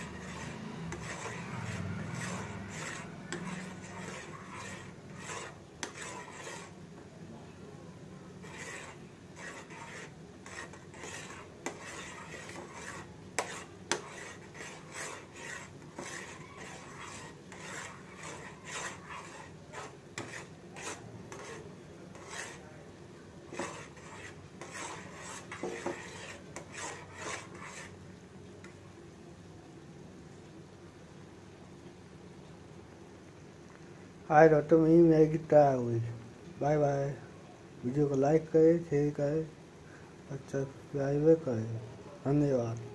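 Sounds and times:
spoon scraping steel pan: 0.0 - 6.8, 8.4 - 22.7, 23.5 - 28.0.

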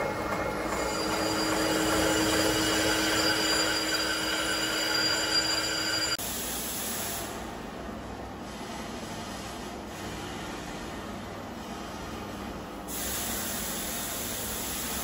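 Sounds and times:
lathe cutting metal with ringing: 0.5 - 6.2.

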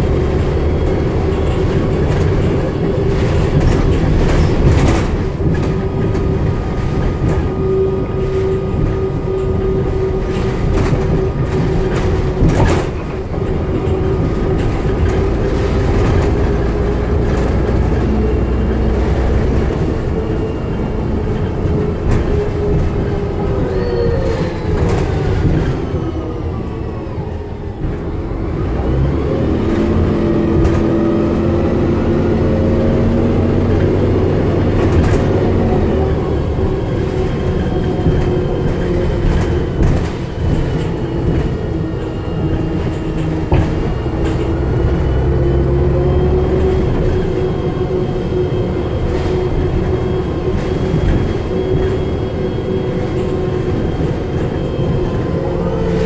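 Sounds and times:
bus body rattles: 0.0 - 56.0
bus driveline whine: 0.0 - 56.0
engine and road rumble: 0.0 - 56.0.

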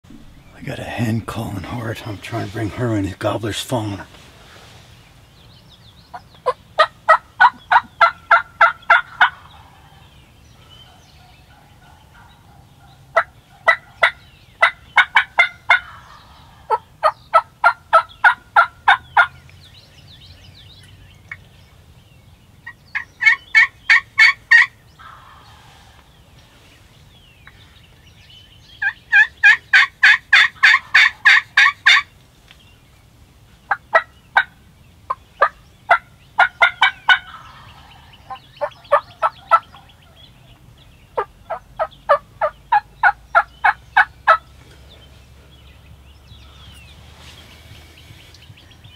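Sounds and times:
turkey hen yelping: 6.1 - 10.0, 10.8 - 19.4, 22.6 - 26.1, 28.8 - 32.1, 33.7 - 34.5, 35.1 - 40.6, 41.2 - 44.4.

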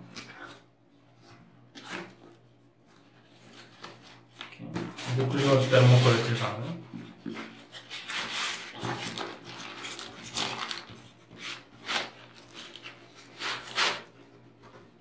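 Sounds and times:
plastic wrapping rustling: 7.1 - 15.0.

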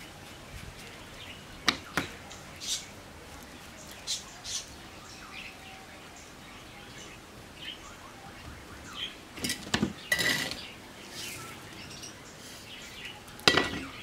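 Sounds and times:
grit rustling under palms: 0.0 - 1.6, 2.6 - 4.8.

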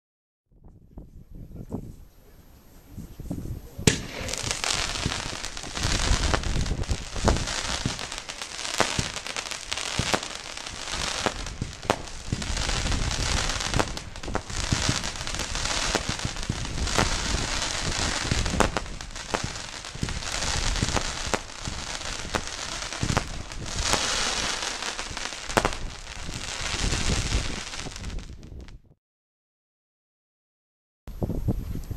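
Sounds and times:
dense firework crackling: 3.0 - 28.8
firework launch thumps: 3.8 - 28.8.

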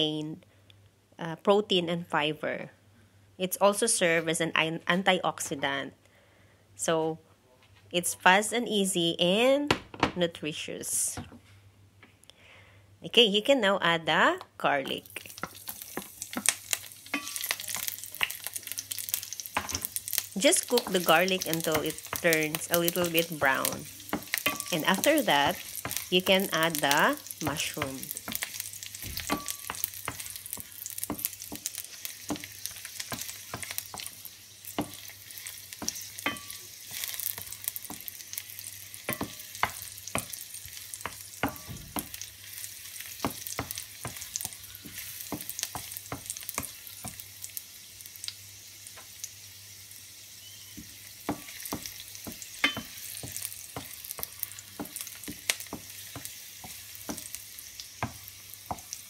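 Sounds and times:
garlic sizzling in hot oil: 14.8 - 59.0.

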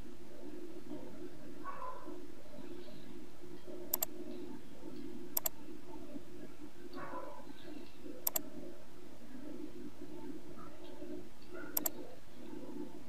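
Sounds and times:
steady low hum: 0.0 - 13.0
mouse button clicks: 8.2 - 8.4, 11.8 - 12.0.

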